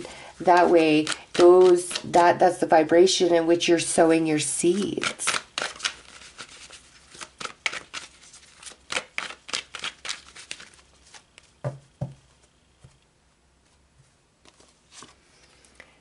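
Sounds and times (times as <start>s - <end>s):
cards shuffling: 0.4s - 2.2s, 4.6s - 12.6s, 14.4s - 15.2s.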